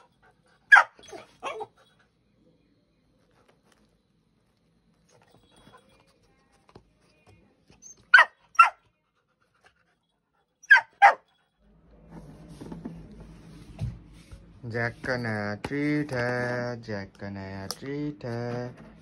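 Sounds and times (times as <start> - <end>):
puppy barking: 0.7 - 1.8, 8.0 - 8.8, 10.6 - 11.3.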